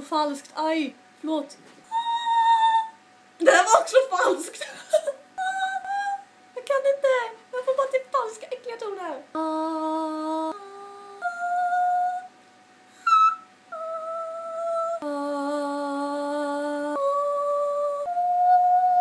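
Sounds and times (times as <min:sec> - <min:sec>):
woman singing layered ooh notes: 0:01.9 - 0:03.2, 0:05.2 - 0:06.4, 0:09.2 - 0:19.0.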